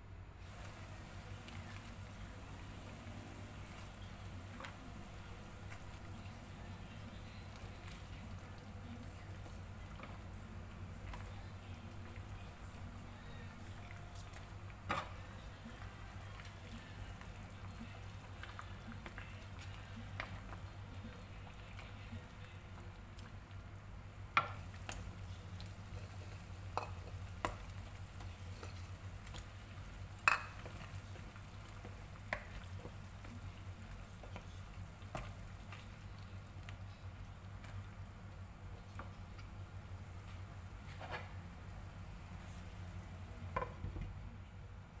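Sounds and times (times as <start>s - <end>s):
pot simmering bubbling: 0.4s - 45.0s.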